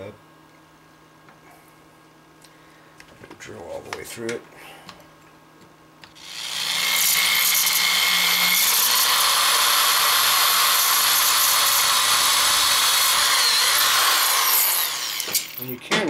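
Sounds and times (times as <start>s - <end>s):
electric drill drilling metal: 6.1s - 15.6s.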